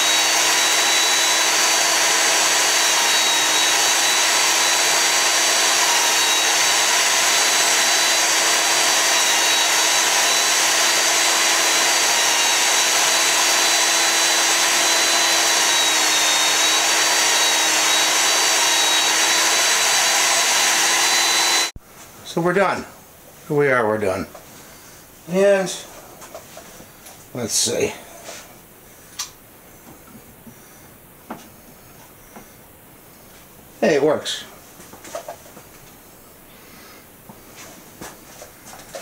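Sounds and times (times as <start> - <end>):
belt sander running: 0.0 - 21.8.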